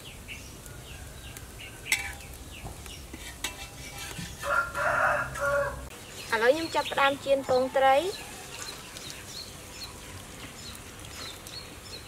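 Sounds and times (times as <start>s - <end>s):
rooster crowing: 4.4s - 5.9s.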